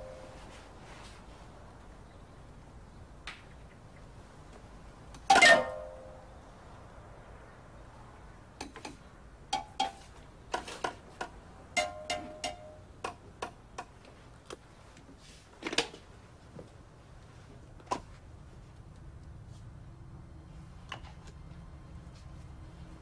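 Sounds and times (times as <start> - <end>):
metal spray cans clinking: 11.8 - 12.8.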